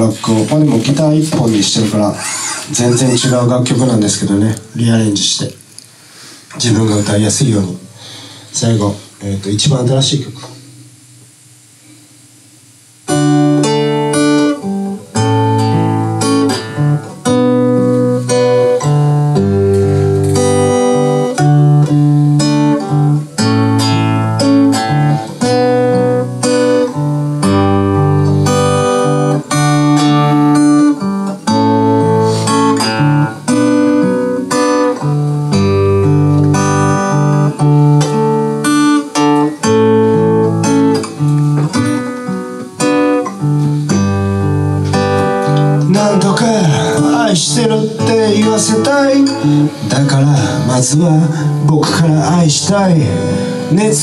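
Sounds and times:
acoustic guitar strumming chords: 13.0 - 54.0.

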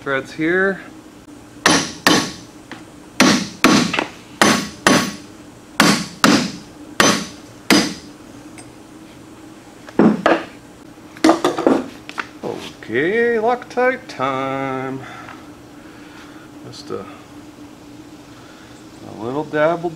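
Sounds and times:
hammer striking metal gear: 1.6 - 2.4, 3.2 - 5.2, 5.8 - 8.0.

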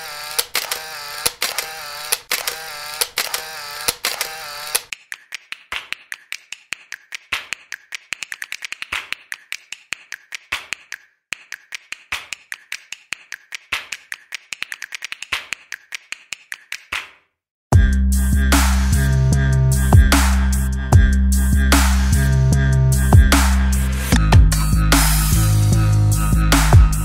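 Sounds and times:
rapid sharp clicks: 0.0 - 17.1.

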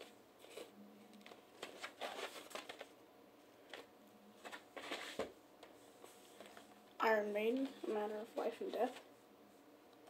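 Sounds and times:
record sleeves rustling and sliding: 1.3 - 2.9, 3.7 - 6.8.

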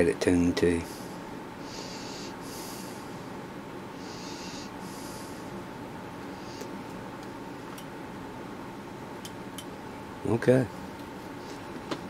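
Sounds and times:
man breathing through nose: 0.9 - 3.3, 4.0 - 5.6.

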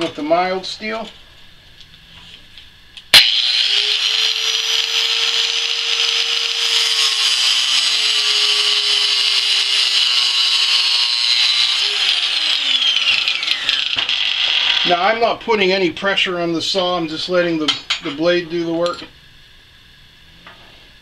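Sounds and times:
angle grinder motor spinning: 3.1 - 15.2
grinder cutting steel: 3.2 - 15.1.

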